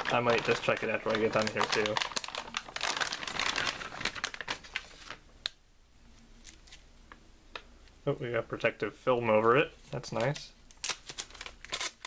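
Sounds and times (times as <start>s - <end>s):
plastic bag crinkling: 0.0s - 5.2s, 10.2s - 12.0s.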